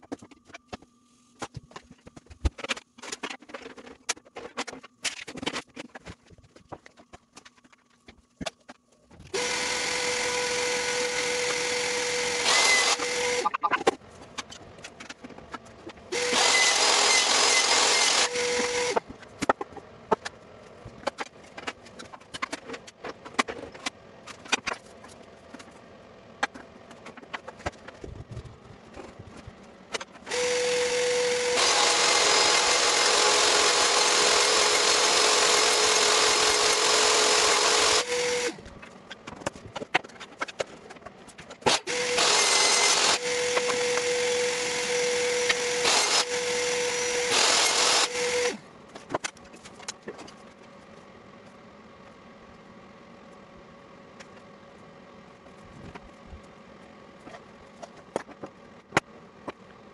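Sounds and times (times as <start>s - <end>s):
table saw cutting wood: 9.4s - 13.9s, 16.1s - 19.0s, 30.2s - 38.6s, 41.7s - 48.6s.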